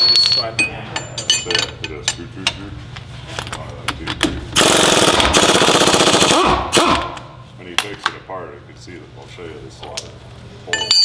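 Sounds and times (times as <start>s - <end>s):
hand tools clinking on metal: 0.0s - 2.7s, 10.7s - 11.0s.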